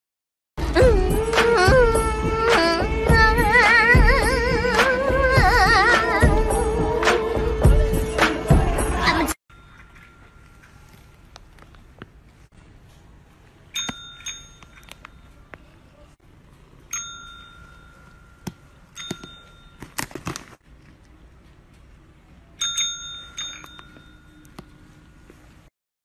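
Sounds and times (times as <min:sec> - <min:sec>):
desk service bell dinging: 0:13.7 - 0:15.4, 0:16.9 - 0:20.0, 0:22.6 - 0:24.9.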